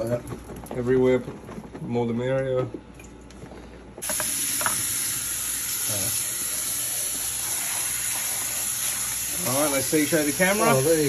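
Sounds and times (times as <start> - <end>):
tap water running: 4.0 - 11.0.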